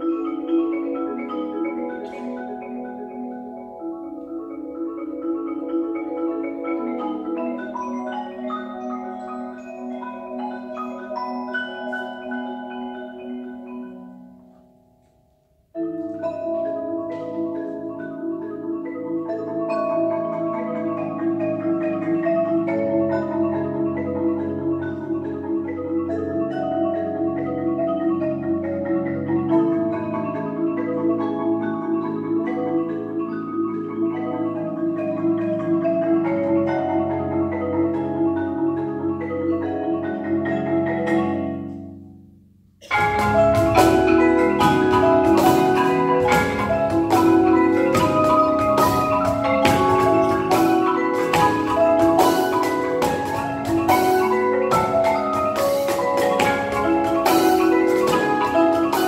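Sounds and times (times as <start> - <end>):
marimbas and vibraphones playing: 0.0 - 59.0
cajon strikes: 42.8 - 59.0.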